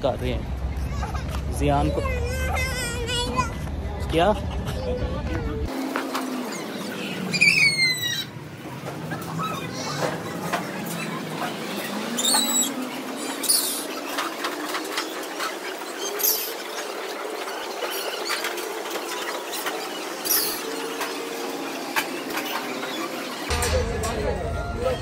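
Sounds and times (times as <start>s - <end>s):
high-pitched squeals: 9.2s - 25.0s.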